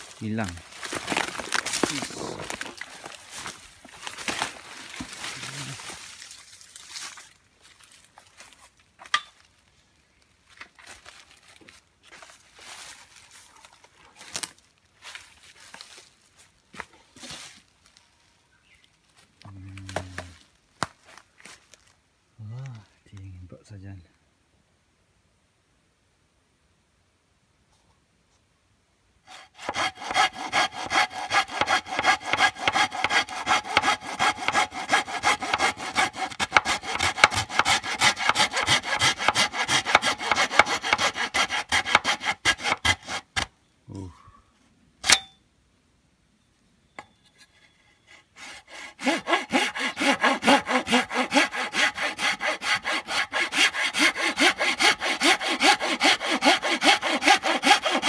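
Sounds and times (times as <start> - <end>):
hand saw cutting bamboo: 0.0 - 6.0, 29.3 - 43.5, 48.1 - 58.0.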